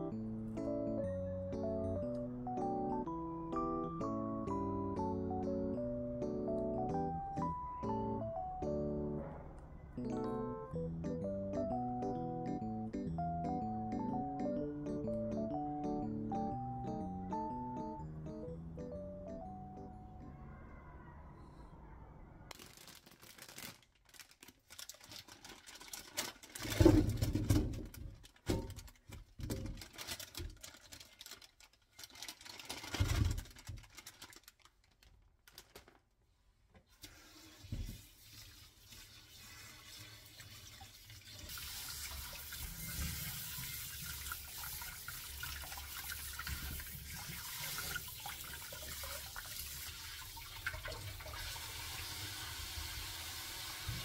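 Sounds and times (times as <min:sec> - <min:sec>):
knocks and clatter: 0:26.5 - 0:30.8.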